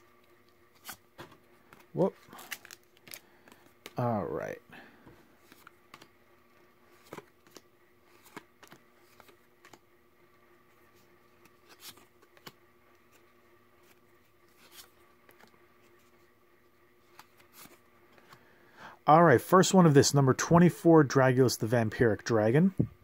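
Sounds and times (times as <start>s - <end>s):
faint room hum: 0.0s - 23.0s
trading cards clicking and swishing: 5.4s - 6.2s, 6.8s - 9.9s, 10.8s - 16.3s, 17.0s - 18.4s.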